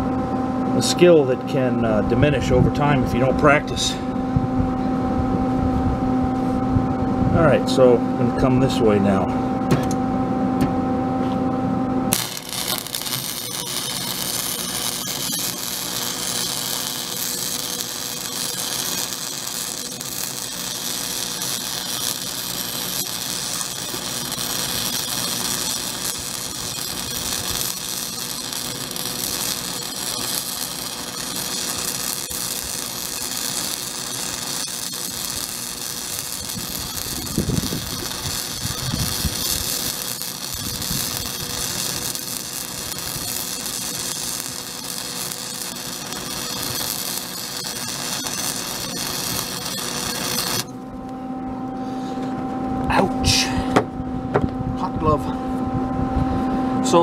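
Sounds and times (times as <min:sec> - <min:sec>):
welding arc hiss: 0:12.1 - 0:50.7.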